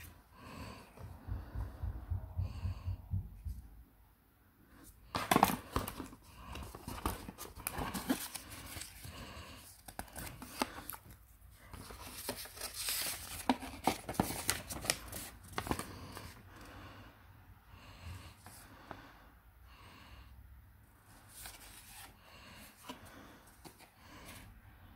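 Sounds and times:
paper and cardboard rustling: 0:05.1 - 0:16.4, 0:21.2 - 0:24.4.

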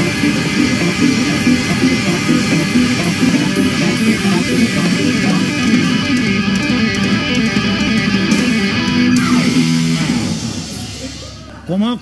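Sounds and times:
rock music with electric guitars: 0:00.0 - 0:11.4.

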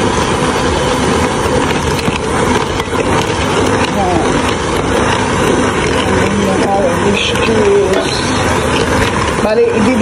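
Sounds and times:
electric hand mixer running: 0:00.0 - 0:10.0.

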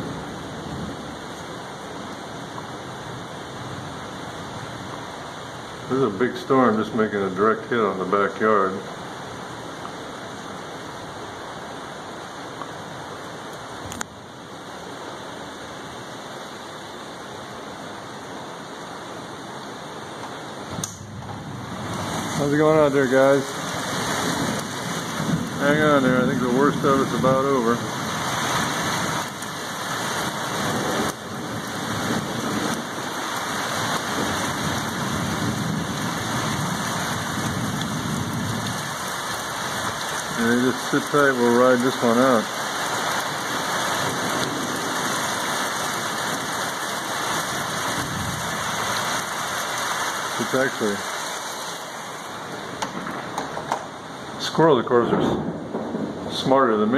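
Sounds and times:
heavy rain pouring: 0:00.0 - 0:56.9
sharp click: 0:20.8 - 0:21.1.

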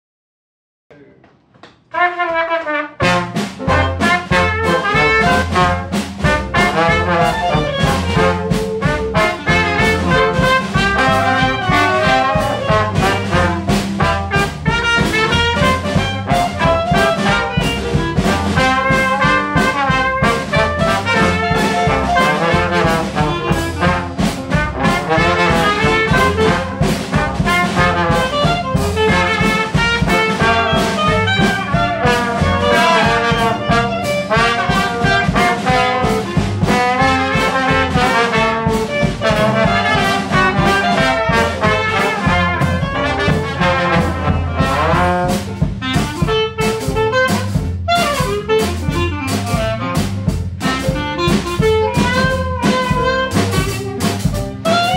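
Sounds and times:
jazz band playing: 0:01.9 - 0:54.9.

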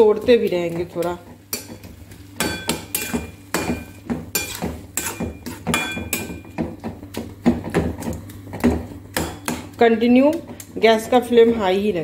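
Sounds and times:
metal spatula scraping a steel pan: 0:04.3 - 0:06.4.

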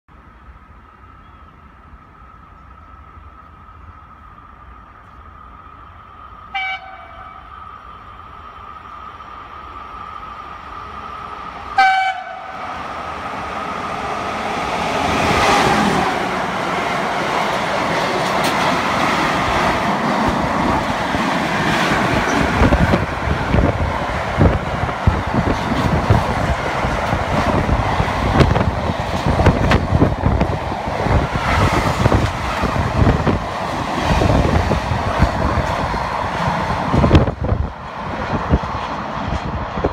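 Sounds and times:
train passing at speed: 0:00.1 - 0:39.9
locomotive horn blast: 0:06.5 - 0:07.4, 0:11.7 - 0:12.6
wheels rattling over rail joints: 0:09.8 - 0:39.9.

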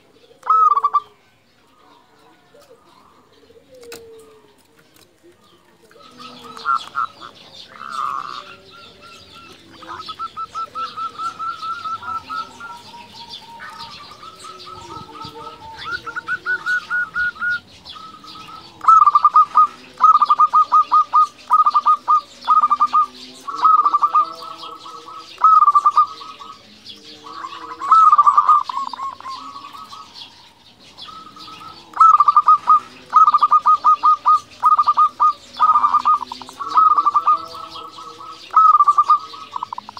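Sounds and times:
dove cooing and trilling: 0:00.0 - 0:39.9.

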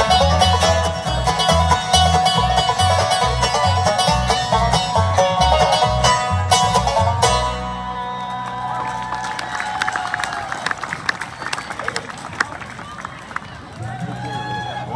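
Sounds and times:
upright bass walking beat: 0:00.0 - 0:08.1
bluegrass band playing live: 0:00.0 - 0:09.5.

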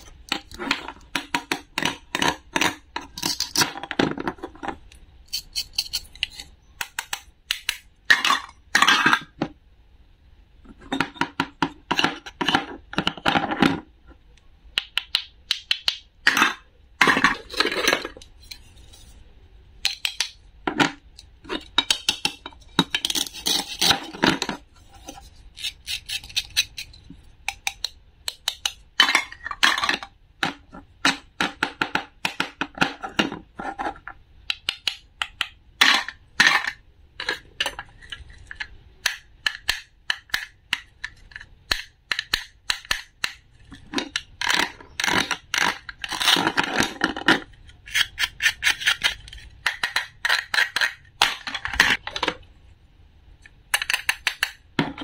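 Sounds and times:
toy food pieces clacking: 0:34.5 - 0:52.2.

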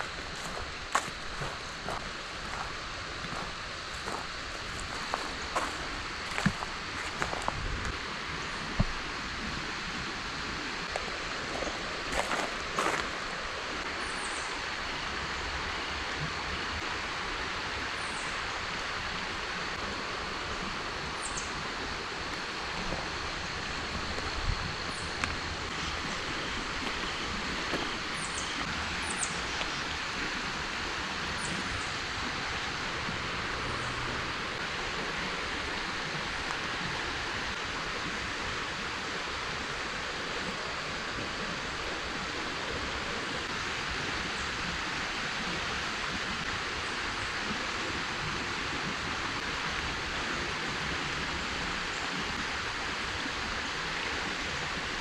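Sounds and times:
river water over gravel: 0:00.0 - 0:55.0.

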